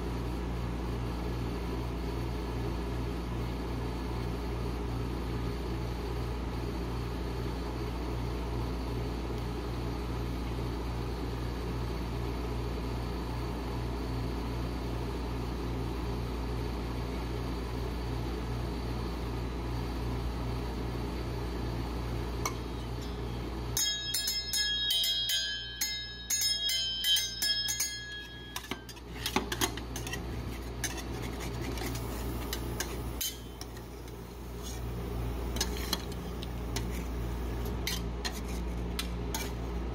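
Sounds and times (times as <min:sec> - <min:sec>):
steel spatulas clinking: 0:23.8 - 0:31.2, 0:32.4 - 0:34.2
taps and scrapes on plate: 0:28.2 - 0:34.8, 0:35.5 - 0:37.1.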